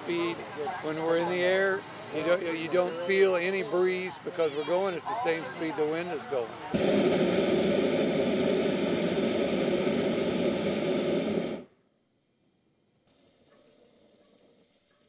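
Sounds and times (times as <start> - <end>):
propane burner hissing: 6.7 - 11.7.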